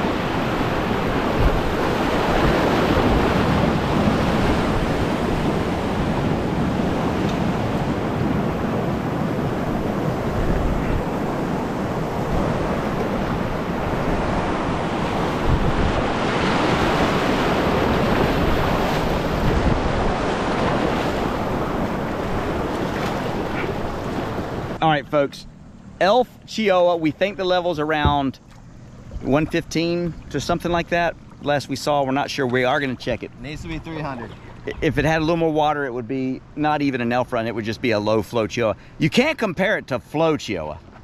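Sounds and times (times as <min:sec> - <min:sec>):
wind noise on microphone: 0:00.0 - 0:24.8
rushing whitewater: 0:00.0 - 0:25.4.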